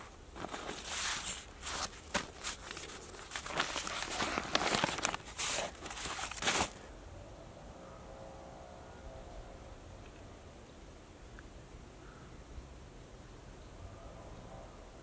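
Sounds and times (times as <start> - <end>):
newspaper pages rustling: 0.0 - 6.8.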